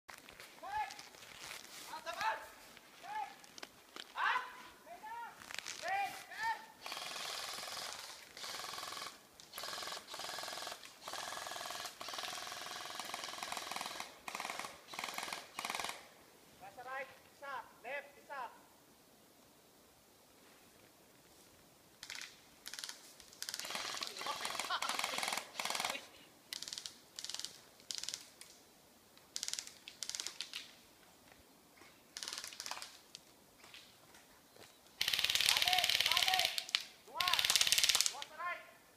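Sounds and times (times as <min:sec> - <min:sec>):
footsteps crunching through undergrowth: 0:00.1 - 0:06.4
airsoft gun firing full-auto: 0:35.0 - 0:38.2.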